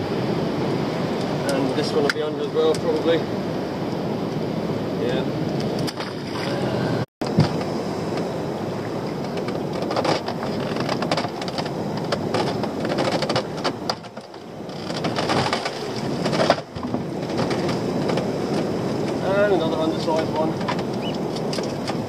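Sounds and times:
wind on microphone: 0.0s - 22.0s
sea water splashing and dripping: 5.5s - 22.0s.

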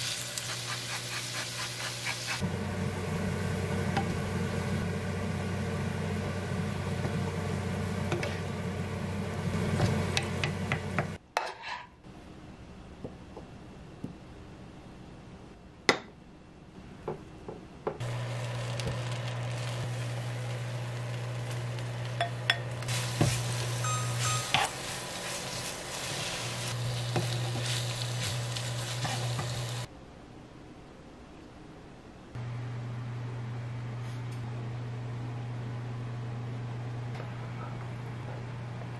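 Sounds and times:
frying pan sizzling: 0.0s - 11.2s, 18.0s - 29.9s
low steady hum: 12.1s - 38.9s.

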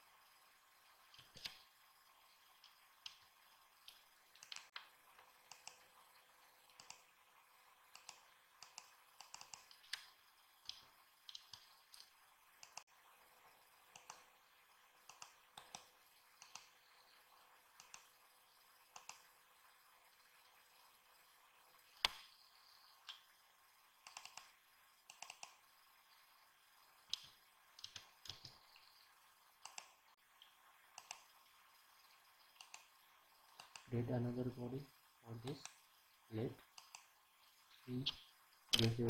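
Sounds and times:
faint steady hum: 0.0s - 39.0s
computer mouse and keyboard clicks: 1.1s - 1.7s, 2.6s - 6.0s, 6.6s - 7.1s, 7.9s - 12.8s, 13.9s - 14.3s, 15.0s - 16.8s, 17.8s - 18.2s, 18.9s - 19.3s, 22.0s - 22.4s, 23.0s - 23.3s, 24.0s - 25.6s, 27.1s - 28.9s, 29.6s - 31.3s, 32.4s - 32.9s, 33.5s - 34.1s, 36.7s - 37.1s, 37.9s - 39.0s.

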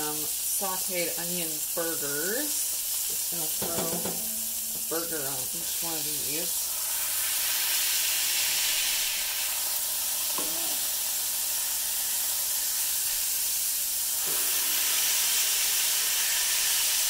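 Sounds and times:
meat and onions sizzling on griddle: 0.0s - 17.0s.

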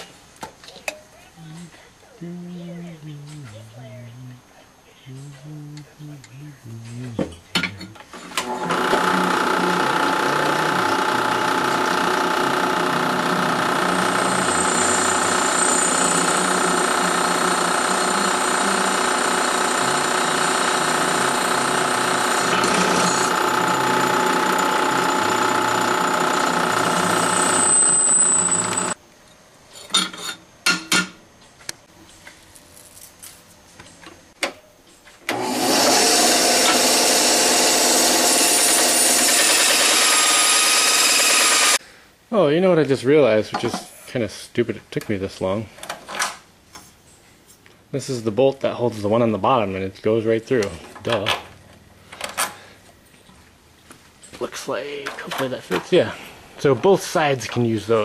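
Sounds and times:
drill press motor hum: 7.8s - 29.0s, 35.3s - 41.8s
loud machine running: 8.4s - 29.0s, 35.3s - 41.8s
drill bit squealing: 13.1s - 29.0s.

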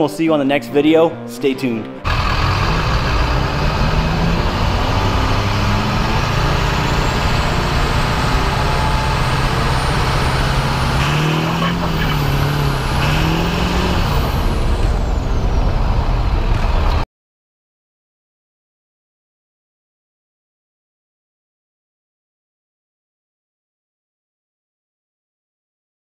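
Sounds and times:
truck engine running: 2.0s - 17.0s.

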